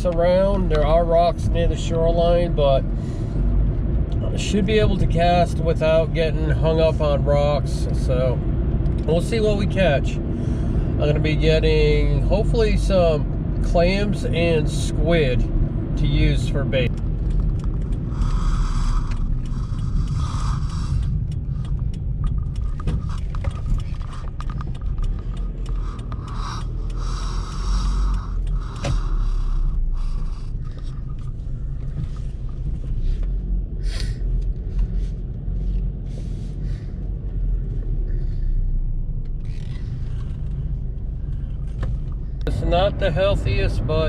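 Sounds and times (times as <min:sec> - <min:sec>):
engine and road rumble: 0:00.0 - 0:44.0
hiss: 0:18.2 - 0:21.1.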